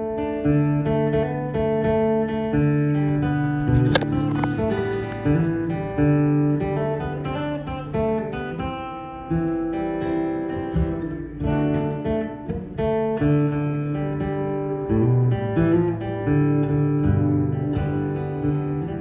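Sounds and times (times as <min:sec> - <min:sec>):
acoustic guitar strumming chords: 0:00.0 - 0:19.0.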